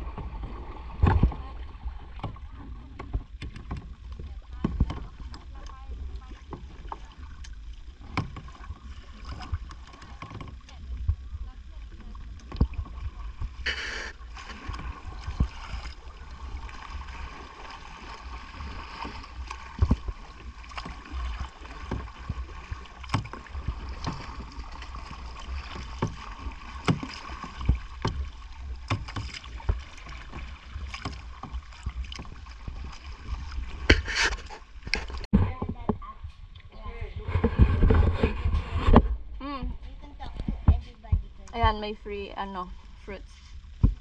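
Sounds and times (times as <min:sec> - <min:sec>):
paddles splashing in water: 0:00.0 - 0:35.9, 0:40.1 - 0:44.0
wind rumble on microphone: 0:00.0 - 0:44.0.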